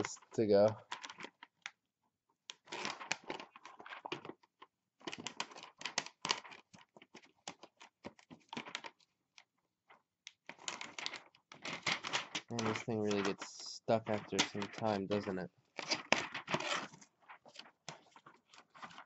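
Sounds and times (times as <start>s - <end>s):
plastic packaging crinkling: 10.5s - 19.0s.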